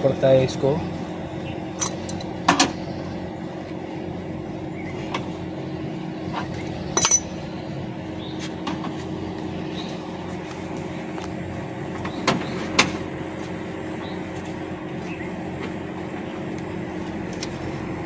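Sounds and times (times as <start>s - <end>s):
air conditioner unit humming: 0.0s - 18.0s
metal clinks of hex key: 1.8s - 2.3s, 7.0s - 7.3s.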